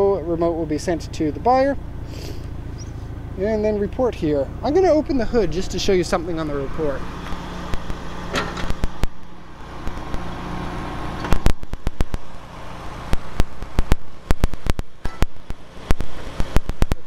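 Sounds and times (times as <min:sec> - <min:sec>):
vehicle engine humming: 0:00.0 - 0:17.0
metallic clicks and clunks of bonnet: 0:07.2 - 0:10.1, 0:13.1 - 0:17.0.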